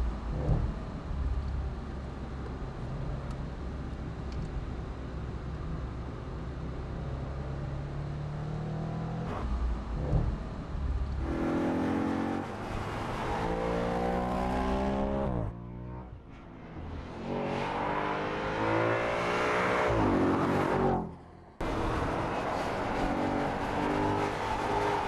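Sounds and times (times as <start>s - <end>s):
car engine accelerating hard: 6.9s - 25.0s.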